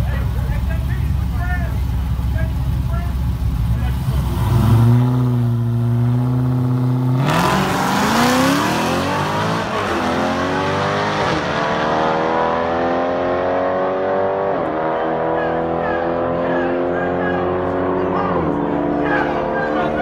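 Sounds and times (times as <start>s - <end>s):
drag racing cars revving: 0.0s - 20.0s
race cars launching and accelerating: 3.4s - 20.0s.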